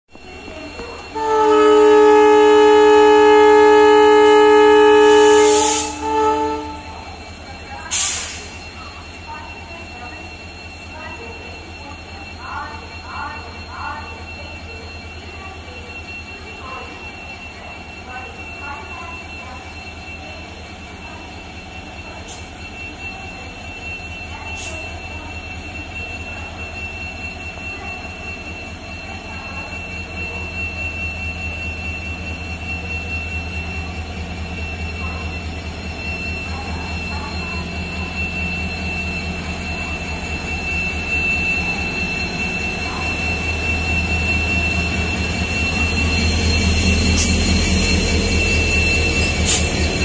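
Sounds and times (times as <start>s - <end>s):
locomotive air horn blast: 1.1s - 7.0s
locomotive engine rumbling: 19.2s - 50.0s.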